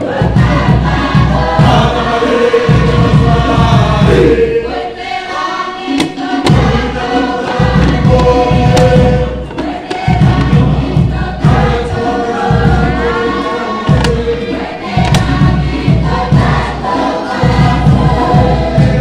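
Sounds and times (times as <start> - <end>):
group singing in chorus: 0.0 - 19.0
low pulsing accompaniment: 6.4 - 19.0.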